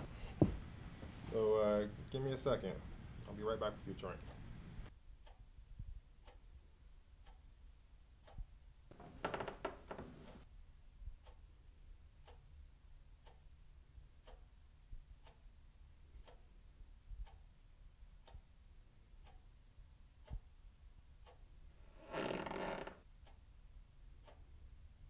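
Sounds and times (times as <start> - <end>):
clock ticking: 1.3 - 4.5, 5.2 - 6.6, 7.2 - 7.5, 8.2 - 10.5, 12.2 - 12.6, 13.2 - 15.5, 16.1 - 17.6, 18.2 - 18.6, 19.2 - 20.6, 21.2 - 21.5, 24.2 - 24.5.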